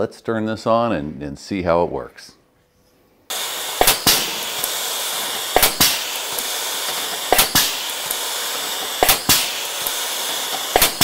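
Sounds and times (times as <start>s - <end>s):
riveting tool snapping: 3.3s - 11.0s
steady hiss: 3.3s - 11.0s.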